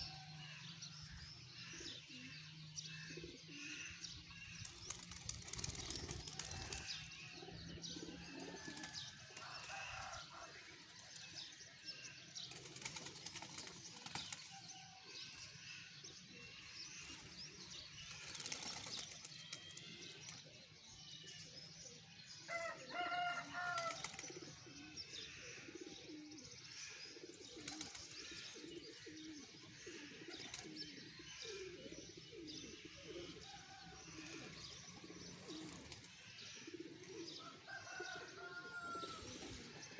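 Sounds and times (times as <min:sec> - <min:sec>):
loud pigeon call: 0:00.0 - 0:39.9
pigeons cooing: 0:01.5 - 0:39.9
wings flapping: 0:04.7 - 0:06.9, 0:12.5 - 0:14.6, 0:18.1 - 0:20.4, 0:23.6 - 0:24.3.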